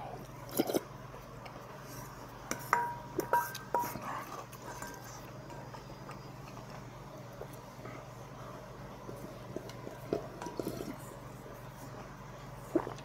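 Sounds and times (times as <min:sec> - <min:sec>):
wooden spoon knocking metal bowl: 0:02.5 - 0:03.9.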